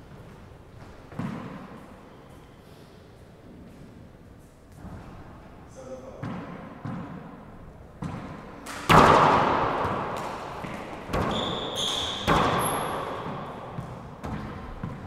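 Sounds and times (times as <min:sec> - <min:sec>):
ball hitting walls and floor: 0:00.2 - 0:01.9, 0:06.2 - 0:15.0
ball bouncing on wooden floor: 0:08.0 - 0:15.0
ball struck hard by hand: 0:08.9 - 0:11.3
high squeak: 0:11.2 - 0:13.0.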